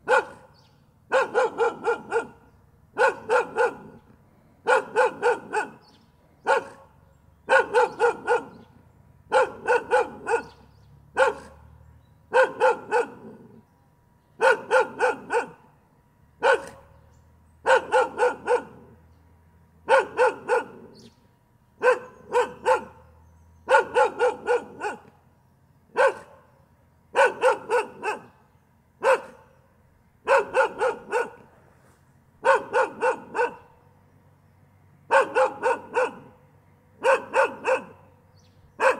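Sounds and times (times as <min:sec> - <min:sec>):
dog barking: 0:00.0 - 0:04.0, 0:04.6 - 0:08.7, 0:09.3 - 0:11.7, 0:12.3 - 0:13.6, 0:14.4 - 0:15.7, 0:16.4 - 0:17.0, 0:17.6 - 0:19.0, 0:19.8 - 0:21.1, 0:21.8 - 0:25.1, 0:25.9 - 0:28.4, 0:29.0 - 0:29.5, 0:30.2 - 0:31.5, 0:32.4 - 0:33.8, 0:35.1 - 0:36.4, 0:37.0 - 0:38.1.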